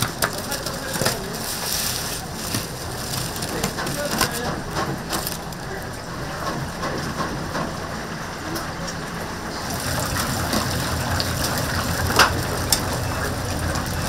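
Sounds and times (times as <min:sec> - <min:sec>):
chicken sizzling in hot oil: 0:09.6 - 0:14.0.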